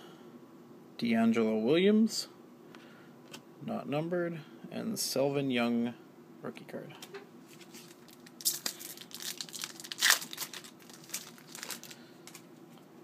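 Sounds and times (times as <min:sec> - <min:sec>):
card pack wrapper tearing and crinkling: 0:07.5 - 0:12.5.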